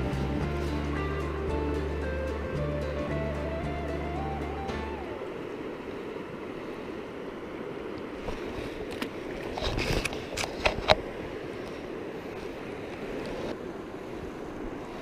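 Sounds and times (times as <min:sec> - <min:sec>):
background music: 0:00.0 - 0:05.3
river flowing: 0:00.0 - 0:15.0.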